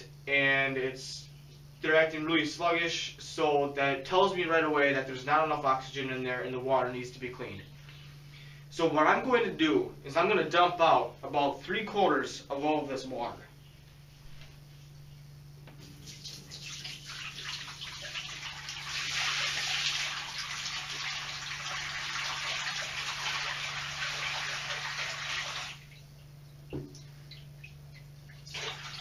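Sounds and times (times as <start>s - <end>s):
water pouring into bathtub: 16.0s - 26.1s, 28.2s - 29.0s.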